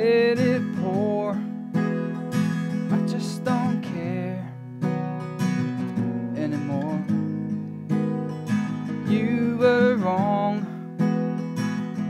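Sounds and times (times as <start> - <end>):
man singing: 0.0 - 1.4, 2.9 - 4.6, 6.3 - 7.2, 9.0 - 10.8
acoustic guitar strumming: 0.0 - 12.0.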